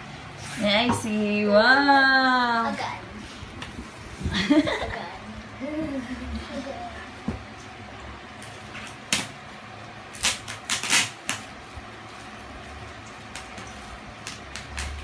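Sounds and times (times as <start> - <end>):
bubble wrap crackling: 10.1 - 15.0.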